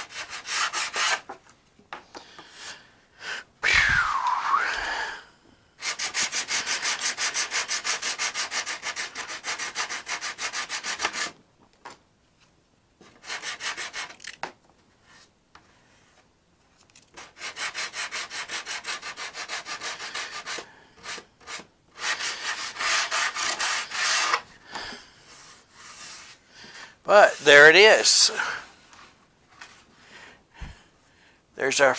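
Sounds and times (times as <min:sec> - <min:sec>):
sandpaper rubbing back and forth: 0:00.0 - 0:01.2, 0:05.8 - 0:11.4, 0:13.2 - 0:14.1, 0:17.2 - 0:24.5, 0:25.3 - 0:26.4.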